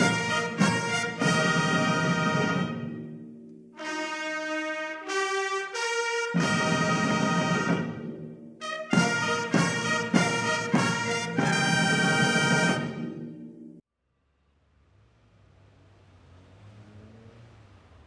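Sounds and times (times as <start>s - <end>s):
brass fanfare music: 0.0s - 13.5s.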